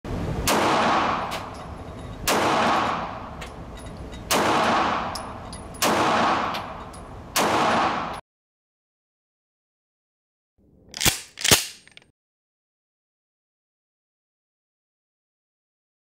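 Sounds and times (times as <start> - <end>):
pistol shots echoing indoors: 0.4 - 1.6, 2.2 - 3.4, 4.3 - 8.2.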